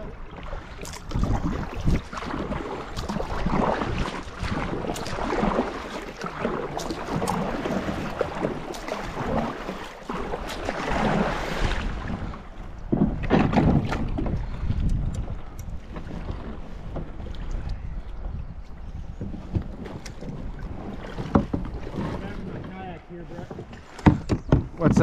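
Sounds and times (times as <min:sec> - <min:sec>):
wind on microphone: 0:00.0 - 0:05.8, 0:10.3 - 0:25.0
paddle strokes splashing water: 0:00.0 - 0:25.0
small knocks and drips: 0:12.8 - 0:22.8, 0:23.4 - 0:25.0.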